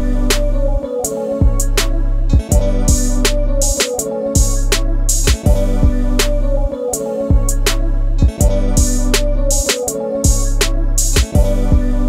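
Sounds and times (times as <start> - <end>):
deep sustained bass: 0.0 - 0.8, 1.4 - 3.7, 4.4 - 6.7, 7.3 - 9.6
music with steady beat: 0.0 - 12.0.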